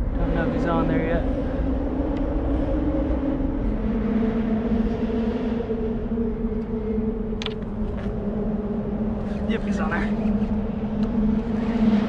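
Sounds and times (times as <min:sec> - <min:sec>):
motor engine droning: 0:00.0 - 0:12.0
wind rumble on microphone: 0:00.0 - 0:12.0.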